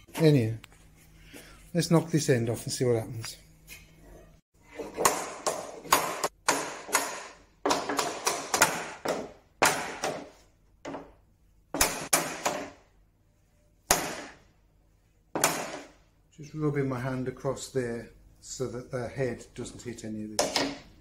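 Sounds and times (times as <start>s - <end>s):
hammer striking wooden bed: 4.9s - 12.8s, 13.9s - 14.4s, 15.4s - 16.0s.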